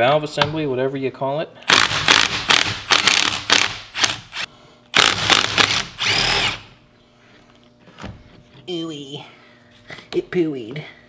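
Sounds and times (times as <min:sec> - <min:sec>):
tool whirring freely: 0:01.7 - 0:06.7.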